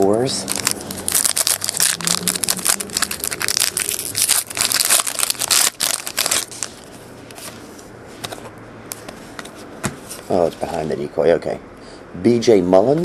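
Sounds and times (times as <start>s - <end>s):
plastic wrapper crinkling and tearing: 0.0s - 6.9s.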